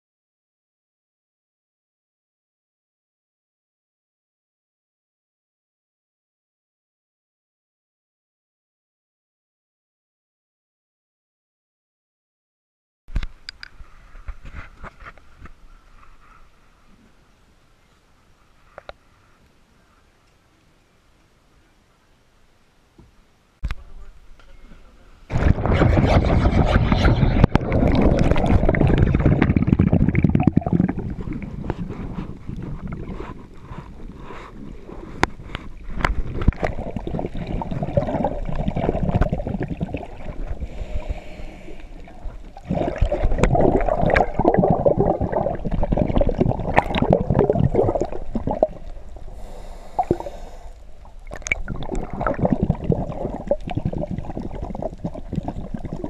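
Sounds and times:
sharp underwater clicks: 0:13.1 - 0:15.5, 0:51.2 - 0:52.4
diver's exhaled bubbles gurgling: 0:25.3 - 0:50.4, 0:51.0 - 0:56.0
water rushing and bubbling: 0:25.3 - 0:56.0.

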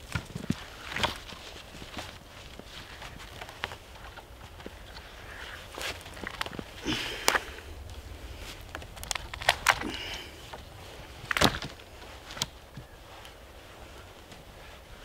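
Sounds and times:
dry twigs cracking and snapping: 0:00.0 - 0:14.5.

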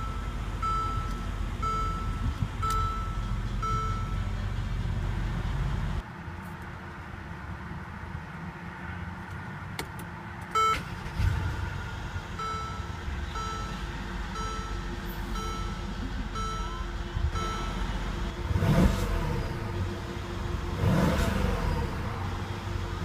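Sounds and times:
dashboard warning chime: 0:00.0 - 0:04.5, 0:10.6 - 0:11.2, 0:12.3 - 0:21.1
car engine starting: 0:00.0 - 0:06.1, 0:09.2 - 0:23.0.

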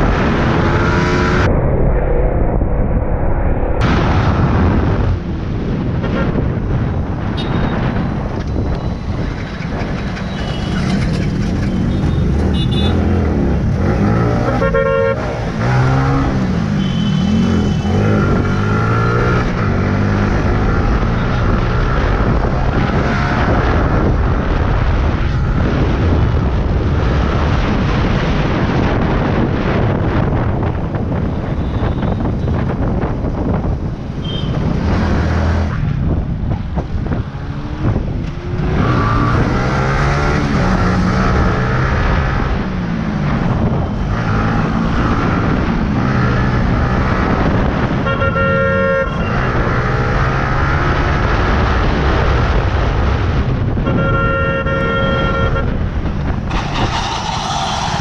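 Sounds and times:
wind rushing over microphone: 0:00.0 - 0:58.0
horn beeping: 0:11.7 - 0:13.2, 0:14.3 - 0:16.1, 0:16.7 - 0:18.1, 0:48.0 - 0:49.6, 0:53.9 - 0:55.8.

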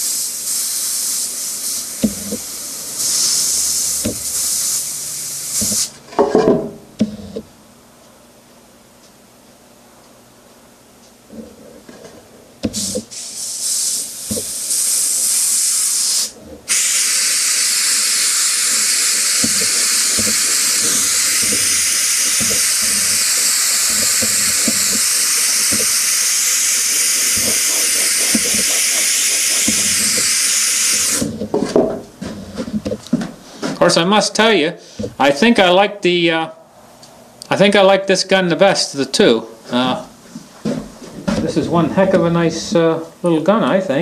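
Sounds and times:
airbrush air hissing: 0:00.0 - 0:06.0, 0:12.6 - 0:31.4.

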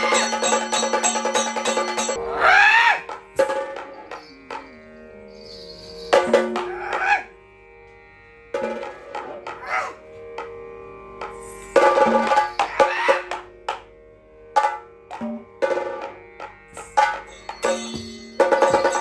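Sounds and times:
drum strokes: 0:00.0 - 0:02.2, 0:03.0 - 0:04.6, 0:06.1 - 0:07.0, 0:08.6 - 0:09.7, 0:11.2 - 0:13.8, 0:14.6 - 0:19.0
sharp struck percussion: 0:00.0 - 0:02.3, 0:03.1 - 0:07.0, 0:11.3 - 0:13.9, 0:14.6 - 0:19.0.

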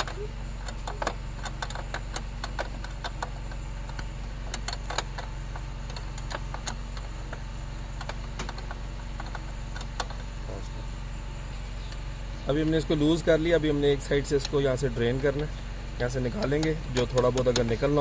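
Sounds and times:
spanner clicking on metal nut: 0:00.0 - 0:07.4, 0:16.0 - 0:18.0
steady low hum: 0:00.0 - 0:18.0.

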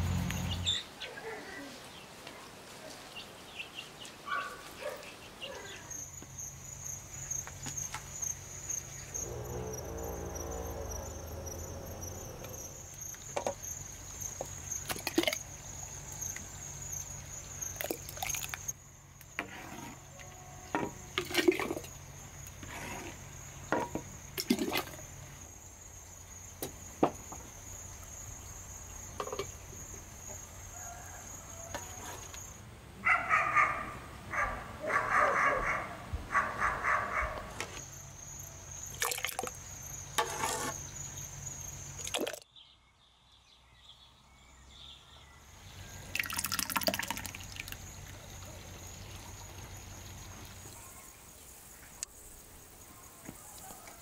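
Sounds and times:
high-pitched insect trill: 0:05.8 - 0:32.6, 0:37.8 - 0:42.2, 0:45.8 - 0:53.1.

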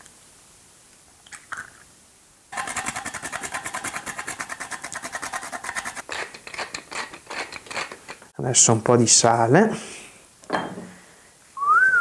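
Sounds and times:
nutmeg grating: 0:02.5 - 0:08.3.

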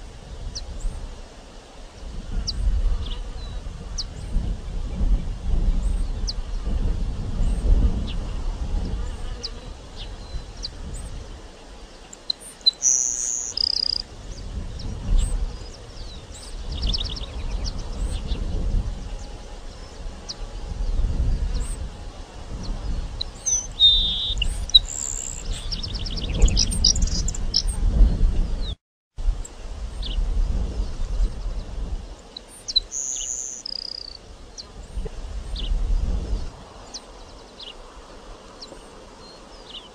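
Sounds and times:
sparrow singing high notes and trill: 0:12.5 - 0:14.0, 0:23.3 - 0:27.7.

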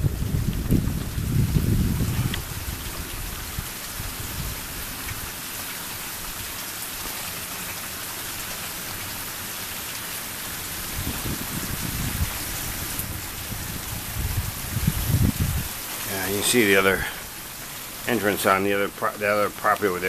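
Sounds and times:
low rumbling: 0:00.0 - 0:05.4, 0:10.8 - 0:18.4
rain falling: 0:00.0 - 0:20.0.

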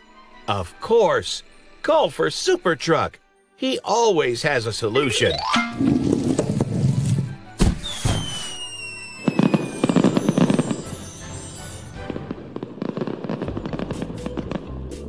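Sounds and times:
background music: 0:00.0 - 0:15.0
high falling whistle: 0:05.0 - 0:05.9, 0:07.6 - 0:11.9
firework crackling: 0:05.9 - 0:15.0
firework bang: 0:07.6 - 0:11.2, 0:12.0 - 0:14.7.

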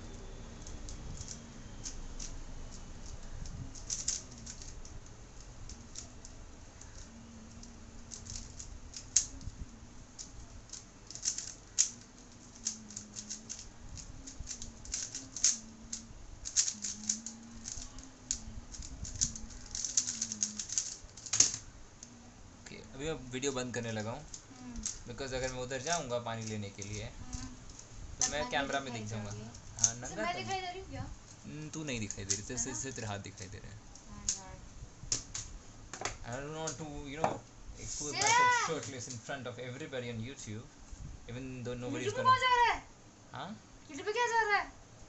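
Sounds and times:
puzzle cube clicking as turned: 0:00.6 - 0:09.5, 0:10.2 - 0:21.6.

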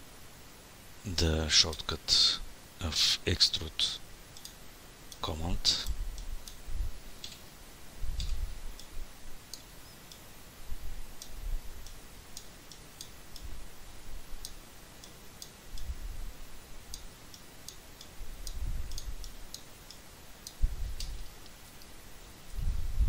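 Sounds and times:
computer mouse clicking: 0:08.2 - 0:08.9, 0:16.9 - 0:21.9
soft low thuds: 0:20.6 - 0:21.2, 0:22.5 - 0:23.0.

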